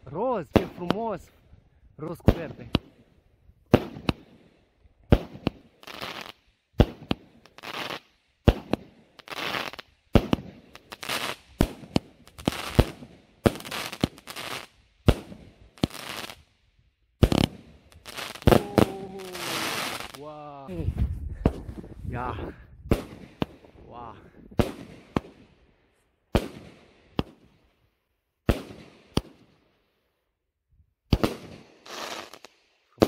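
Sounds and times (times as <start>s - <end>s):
fireworks crackling bursts: 0.5s - 1.3s, 2.0s - 3.1s, 3.7s - 16.5s, 17.2s - 20.4s, 22.9s - 23.8s, 24.6s - 25.6s, 26.3s - 27.6s, 28.5s - 29.6s, 31.1s - 33.0s
fireworks shots popping: 2.2s - 3.0s, 3.7s - 4.5s, 5.1s - 16.4s, 17.2s - 20.2s, 22.9s - 23.8s, 24.5s - 25.5s, 26.3s - 27.6s, 28.4s - 29.5s, 31.1s - 32.6s.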